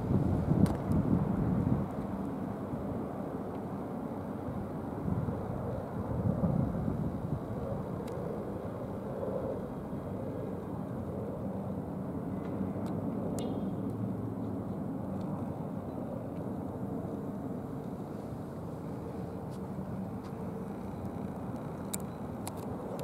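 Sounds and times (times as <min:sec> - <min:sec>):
distant helicopter drone: 0:02.2 - 0:23.0.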